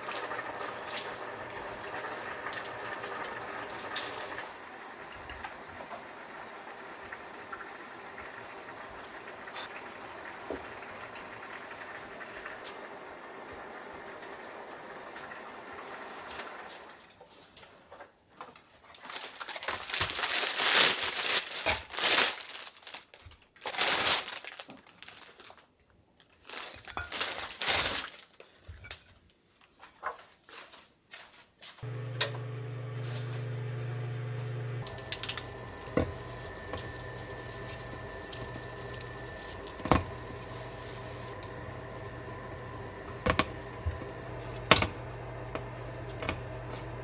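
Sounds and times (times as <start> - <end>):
plastic bag crinkling: 18.8 - 28.6.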